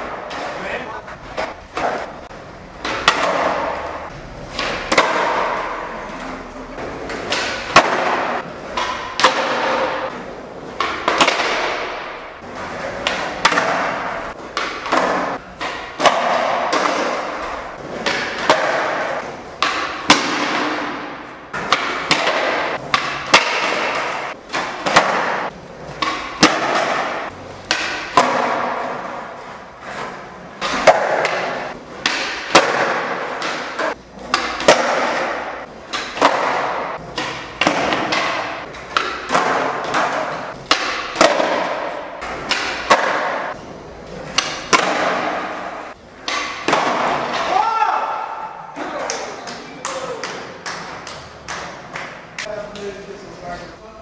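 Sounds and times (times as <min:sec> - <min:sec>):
skateboard clacks: 0:00.0 - 0:53.0
skateboard wheels rolling on concrete: 0:00.0 - 0:53.4.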